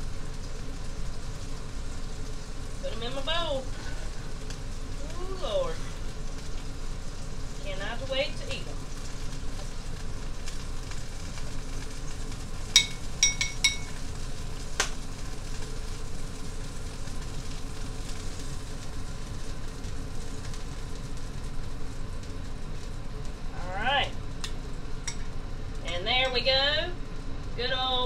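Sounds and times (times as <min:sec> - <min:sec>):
grease sizzling in skillet: 0:00.0 - 0:28.0
fork clinking against ceramic bowl: 0:12.8 - 0:14.0.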